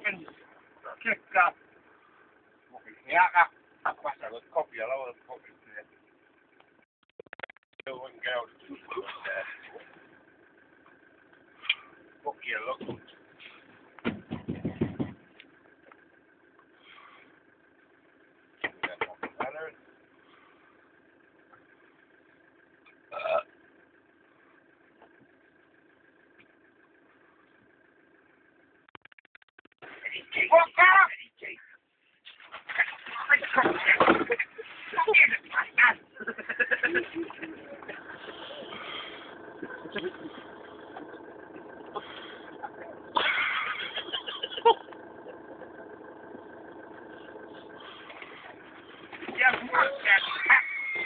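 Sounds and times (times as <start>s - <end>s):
van engine idling: 0.0s - 6.9s, 7.8s - 28.9s, 29.8s - 51.0s
rustling and knocks: 14.0s - 15.4s.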